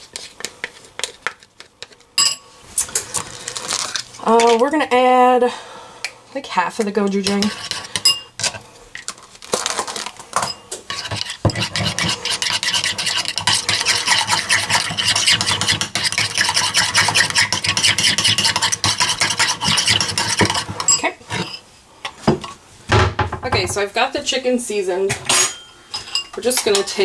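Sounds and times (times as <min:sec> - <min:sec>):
spoon scraping ceramic bowl: 0:07.0 - 0:08.6, 0:10.4 - 0:21.6.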